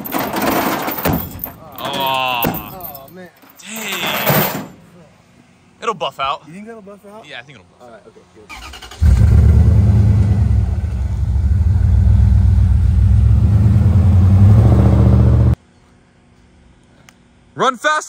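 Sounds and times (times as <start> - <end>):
truck engine rumbling: 8.5 - 15.6.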